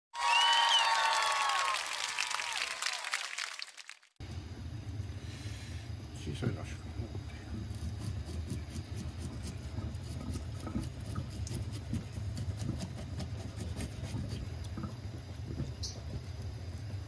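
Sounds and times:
low hum: 0:04.2 - 0:17.0.

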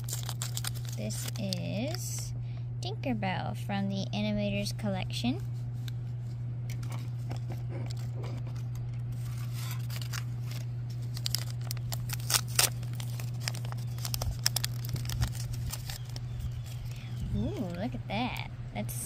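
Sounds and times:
foil wrapper crinkling and tearing: 0:00.0 - 0:02.2, 0:06.7 - 0:17.9
steady low hum: 0:00.0 - 0:19.0.

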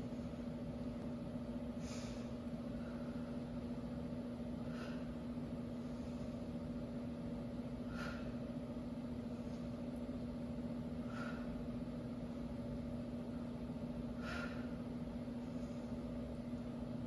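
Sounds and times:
low hum: 0:00.0 - 0:17.0
person breathing sharply: 0:01.8 - 0:03.3, 0:04.6 - 0:05.2, 0:07.8 - 0:08.5, 0:11.0 - 0:11.7, 0:14.1 - 0:16.0.

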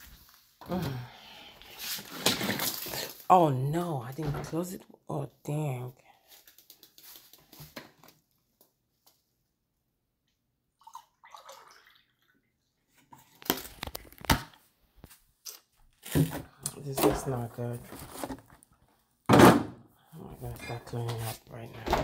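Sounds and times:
juice dripping and splashing: 0:10.8 - 0:12.4.

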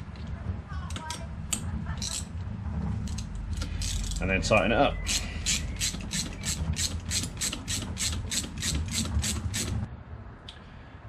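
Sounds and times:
socket ratchet clicking: 0:05.1 - 0:09.8.

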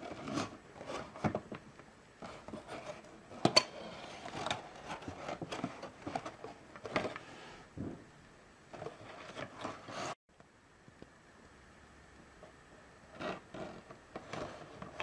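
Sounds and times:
cardboard scraping and rustling: 0:02.2 - 0:07.6, 0:08.8 - 0:10.2, 0:13.1 - 0:15.0.

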